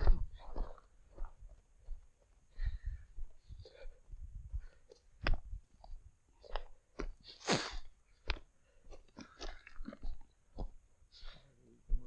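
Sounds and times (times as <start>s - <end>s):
footsteps crunching on scree: 0.0s - 1.5s.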